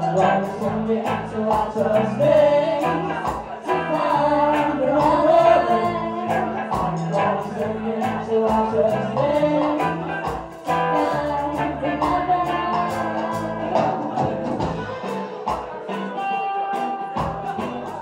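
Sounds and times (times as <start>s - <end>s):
live reggae band: 0.0s - 18.0s
person singing: 0.0s - 18.0s.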